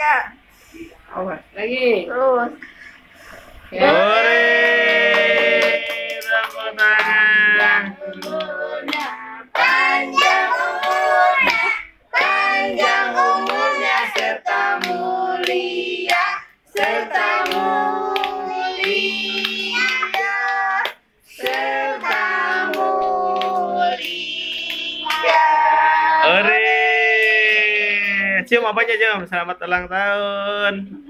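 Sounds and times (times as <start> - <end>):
group singing a celebration song: 3.2 - 27.0
hands clapping: 4.6 - 11.7, 16.8 - 24.2, 25.0 - 25.4.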